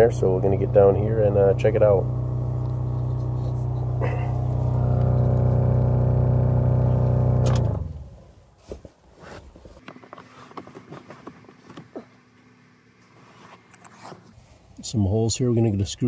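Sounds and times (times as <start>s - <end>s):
blower motor humming drone: 0.0s - 8.2s.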